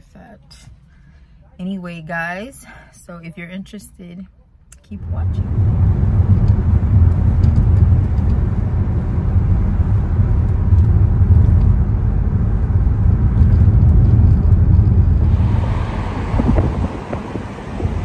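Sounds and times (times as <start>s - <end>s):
car engine and tyre noise: 4.9s - 18.0s.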